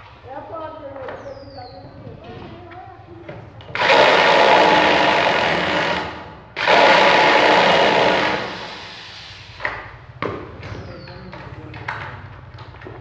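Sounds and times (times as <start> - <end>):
electric drill-driver running: 3.7 - 9.1.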